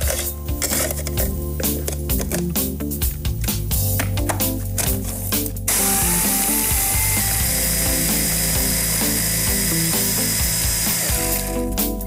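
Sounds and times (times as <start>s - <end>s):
electric chopper grinding biscuits: 4.8s - 11.9s.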